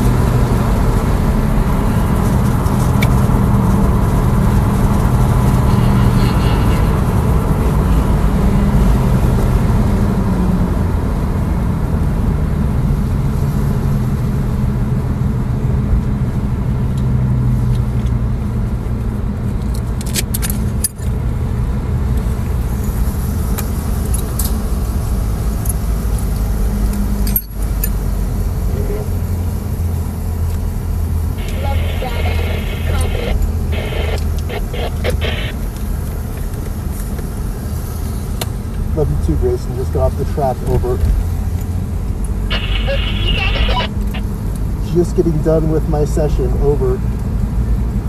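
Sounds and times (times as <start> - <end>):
low drivetrain hum: 0.0 - 48.0
tyre and road rumble: 17.7 - 45.0.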